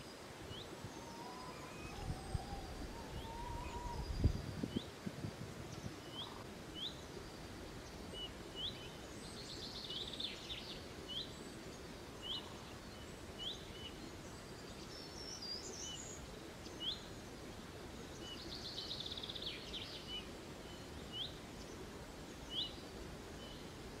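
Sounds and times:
songbird high rising call notes: 0:00.5 - 0:04.9.

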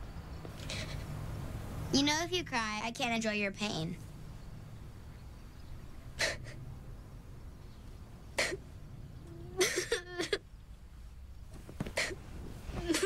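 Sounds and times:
boy sniffling: 0:06.2 - 0:06.6, 0:08.4 - 0:08.6, 0:12.0 - 0:12.2
boy whimpering sob: 0:09.3 - 0:10.4.

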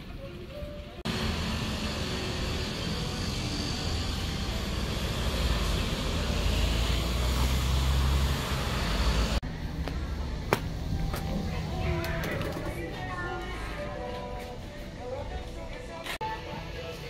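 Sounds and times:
vehicle engine rumble: 0:01.0 - 0:12.9
cars passing: 0:01.1 - 0:11.8.

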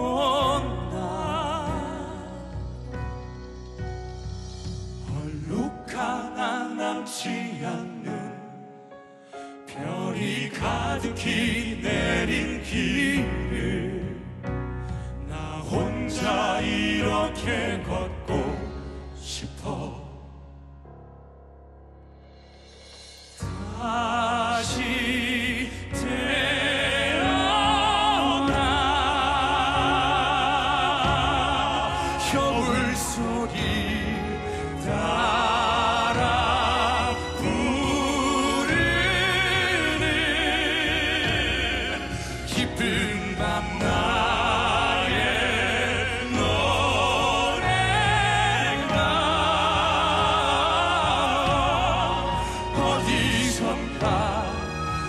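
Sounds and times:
male vocal quartet singing: 0:00.0 - 0:20.6, 0:23.4 - 0:55.0
instrumental accompaniment: 0:21.9 - 0:55.0.

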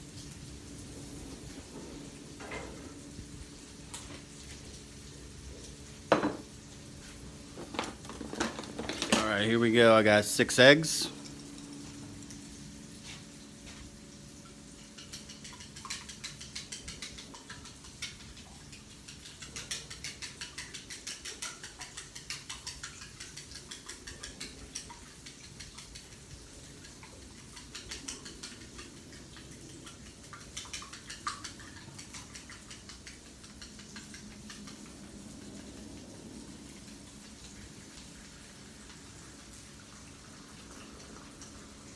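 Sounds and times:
chopsticks clicking against bowl: 0:15.0 - 0:26.0, 0:30.6 - 0:34.9.

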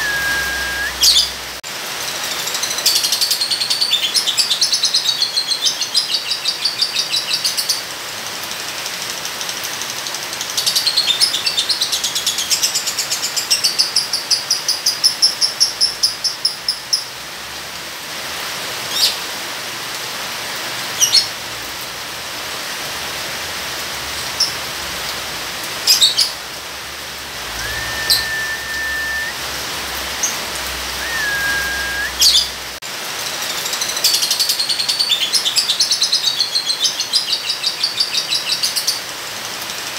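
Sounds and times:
bird whistles: 0:00.0 - 0:01.3, 0:27.5 - 0:29.4, 0:30.9 - 0:32.5
bird chirps: 0:00.0 - 0:01.4, 0:27.5 - 0:29.4, 0:31.0 - 0:32.5
rain hiss: 0:00.0 - 0:39.9.

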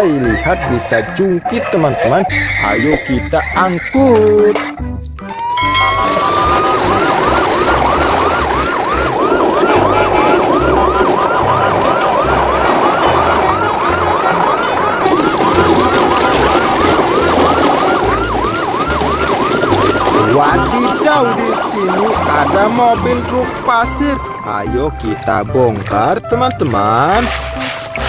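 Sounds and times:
electronic siren yelping: 0:05.2 - 0:24.4.

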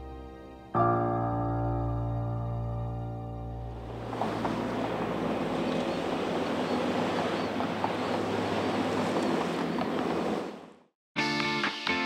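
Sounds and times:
wind: 0:01.6 - 0:11.0
passing cars rushing: 0:03.8 - 0:10.7.

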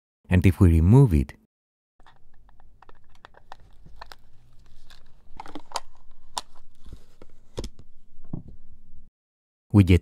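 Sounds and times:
small clicks and scrapes: 0:02.0 - 0:07.8.

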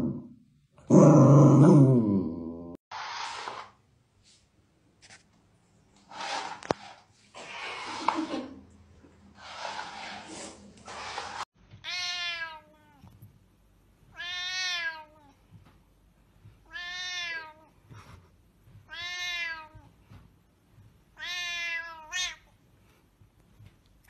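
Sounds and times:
cat meowing: 0:11.8 - 0:13.1, 0:14.1 - 0:15.4, 0:16.6 - 0:17.7, 0:18.9 - 0:19.9, 0:21.2 - 0:22.5.

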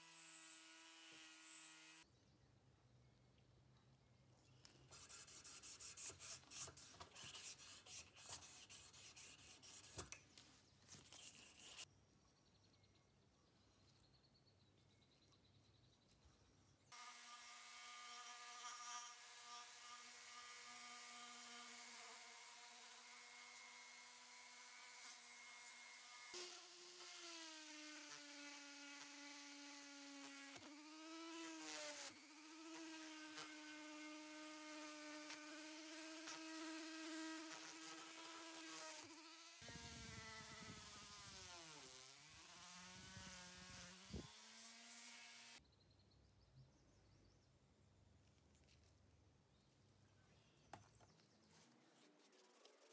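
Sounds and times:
rotary tool whining on metal: 0:00.0 - 0:02.0, 0:17.0 - 0:45.6.

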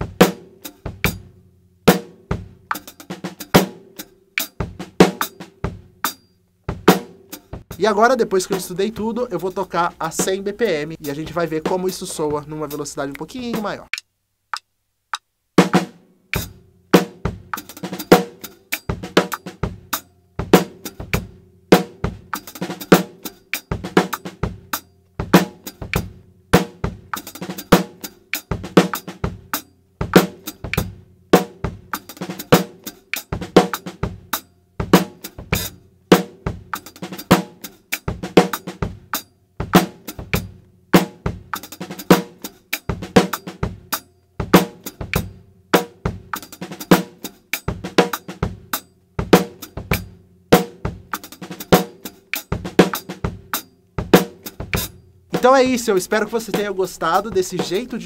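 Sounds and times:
bass drum: 0:00.0 - 0:03.8, 0:06.6 - 0:12.7, 0:38.1 - 0:46.4, 0:47.7 - 0:51.6, 0:52.5 - 0:58.0
snare drum: 0:01.9 - 0:06.0, 0:06.7 - 0:13.9, 0:15.6 - 0:58.0.

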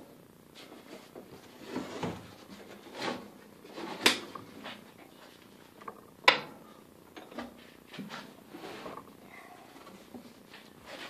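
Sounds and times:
scraping on wooden workbench: 0:00.7 - 0:04.8.

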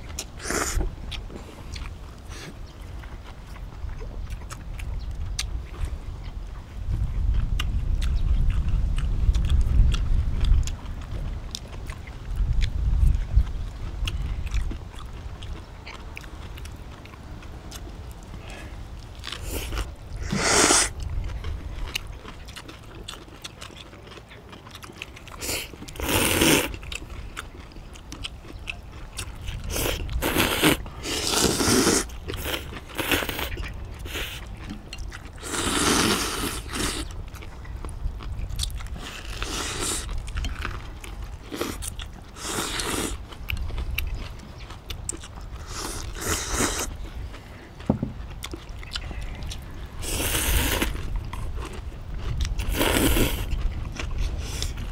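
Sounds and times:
chewing and crunching: 0:00.0 - 0:54.9
noodle slurps: 0:19.4 - 0:21.0, 0:29.7 - 0:34.4, 0:35.4 - 0:37.1.

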